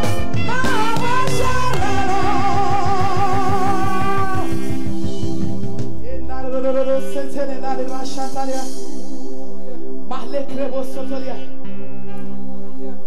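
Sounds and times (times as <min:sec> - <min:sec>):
drum kit with fast pulse: 0:00.0 - 0:06.0.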